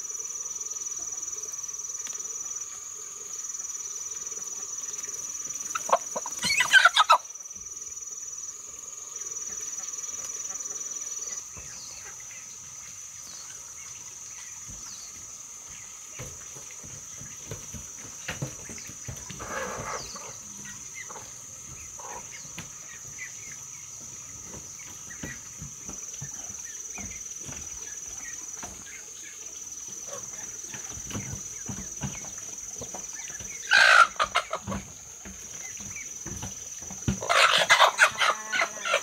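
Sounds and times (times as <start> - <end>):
high-pitched insect drone: 0.0 - 39.0
hens clucking: 5.6 - 7.3, 18.6 - 23.3, 32.9 - 35.3, 37.1 - 39.0.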